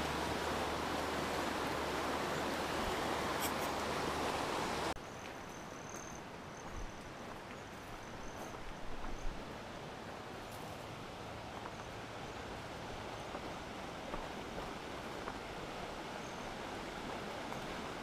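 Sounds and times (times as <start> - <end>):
river water rushing: 0.0 - 5.0, 9.1 - 18.0
footsteps on dirt trail: 5.0 - 9.4, 13.3 - 15.5.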